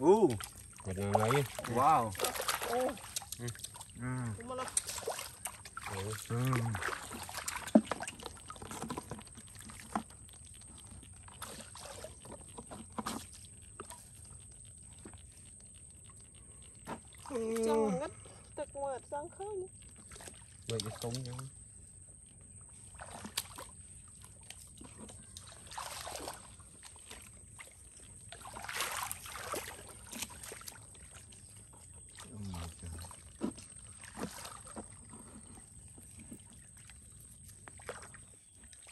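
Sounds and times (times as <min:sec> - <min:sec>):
faint ticks and drips: 0:00.0 - 0:38.9
muddy water trickling and splashing: 0:00.0 - 0:38.9
faint clicks: 0:03.0 - 0:03.8.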